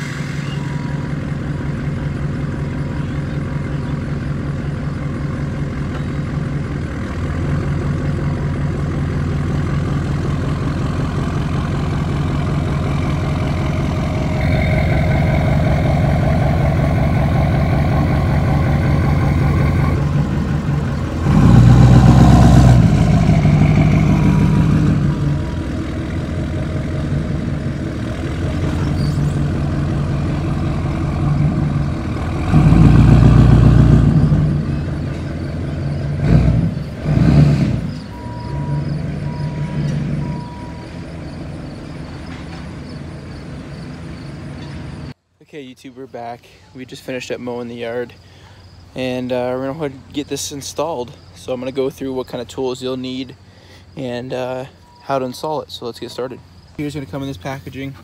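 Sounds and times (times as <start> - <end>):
diesel truck engine running: 0.0 - 45.2
engine throttle bursts: 8.3 - 41.6.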